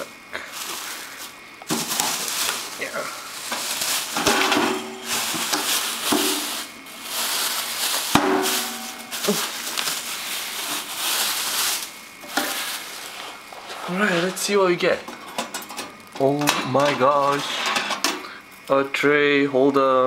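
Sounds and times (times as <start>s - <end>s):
plastic bag crinkling: 0.0s - 15.0s.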